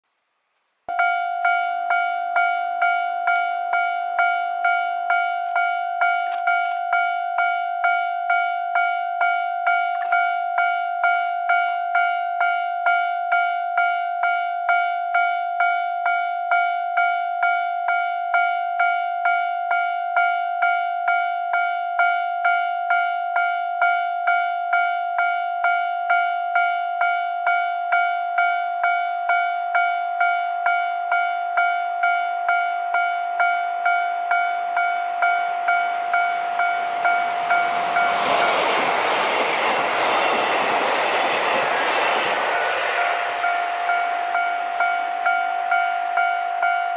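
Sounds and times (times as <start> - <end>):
level crossing warning bell: 0.9 - 39.2, 41.6 - 46.9
diesel train passing: 33.8 - 46.9
wheels rushing on rail: 34.2 - 46.9.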